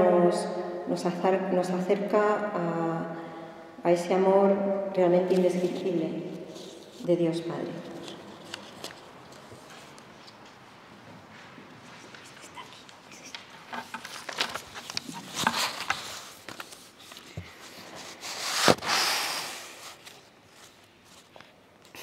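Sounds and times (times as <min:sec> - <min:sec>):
rustling: 0:05.6 - 0:10.6, 0:11.2 - 0:22.0
footsteps: 0:07.7 - 0:18.2.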